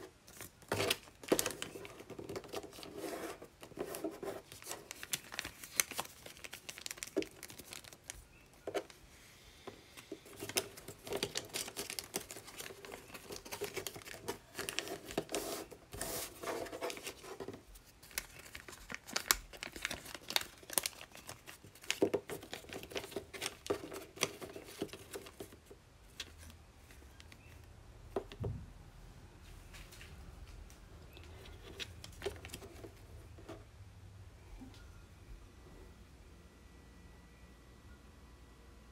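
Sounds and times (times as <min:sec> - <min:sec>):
paper crinkling and rustling: 0:00.2 - 0:09.0, 0:10.0 - 0:27.5, 0:31.2 - 0:33.1.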